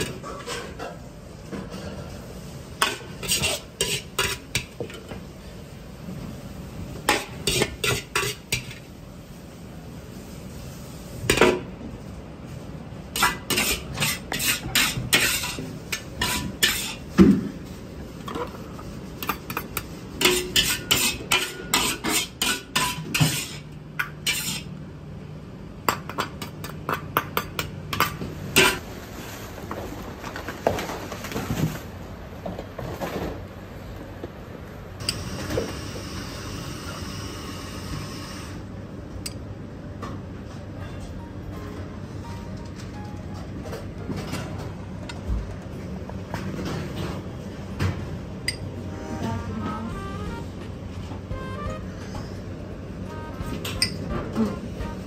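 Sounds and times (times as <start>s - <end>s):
metal ladle scraping a wok: 2.8s - 4.6s, 7.1s - 8.8s, 13.2s - 17.0s, 20.2s - 24.7s.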